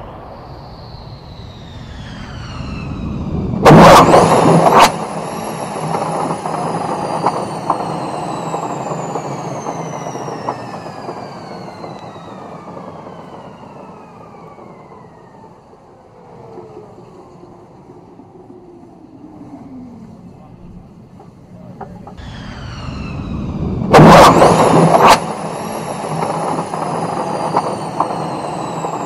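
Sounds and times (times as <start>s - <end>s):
loud blast of noise: 0.0s - 11.4s, 22.2s - 29.0s
jet engines whining: 0.0s - 29.0s.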